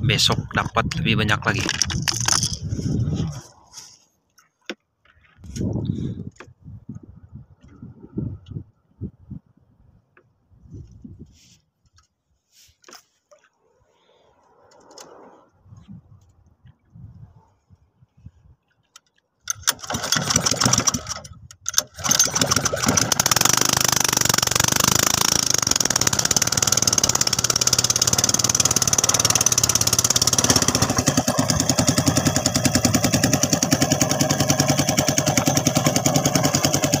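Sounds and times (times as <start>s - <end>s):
small petrol engine running: 19.5s - 37.0s.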